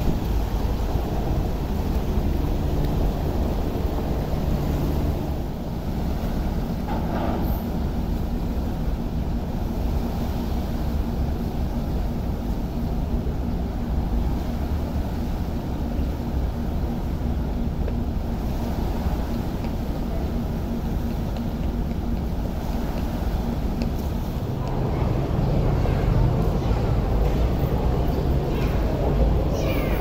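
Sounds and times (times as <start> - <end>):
wind on microphone: 0.0 - 7.9
ferry engine humming: 0.0 - 30.0
propeller churning water: 0.0 - 30.0.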